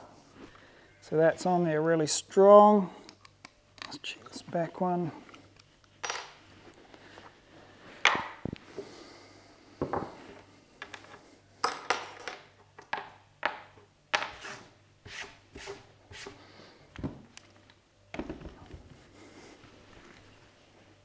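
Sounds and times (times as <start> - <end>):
metal tools clinking on wood: 10.8 - 13.0.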